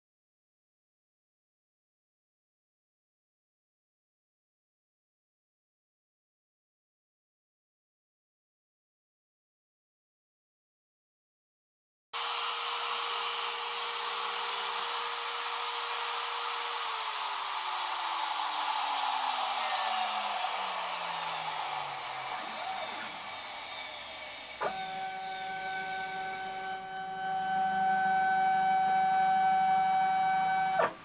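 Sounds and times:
stepper motors humming: 12.2 - 28.8
router whining and spinning down: 12.2 - 31.0.

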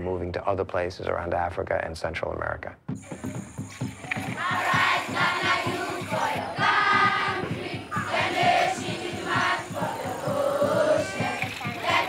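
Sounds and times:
choir singing over fast beat: 3.0 - 12.0.

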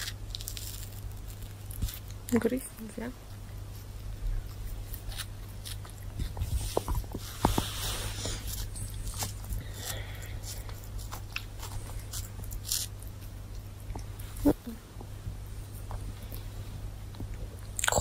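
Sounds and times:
kitten gnawing and biting: 0.0 - 2.3, 3.2 - 14.4
rustling: 3.4 - 16.9.

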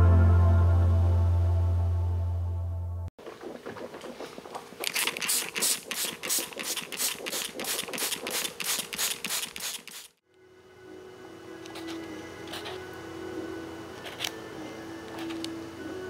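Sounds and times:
spray bottle hissing: 4.9 - 10.2.

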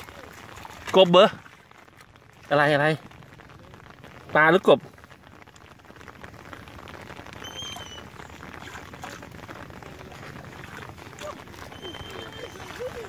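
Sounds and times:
rain pattering on water: 0.0 - 13.0
faint high whistle: 11.7 - 12.8.

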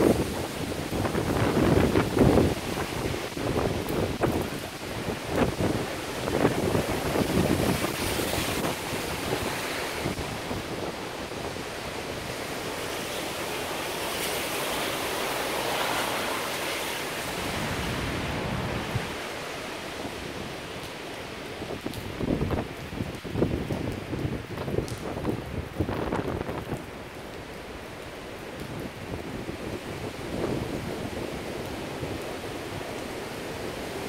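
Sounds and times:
falling rain: 0.0 - 34.0
wind gusts buffeting microphone: 0.0 - 34.0.

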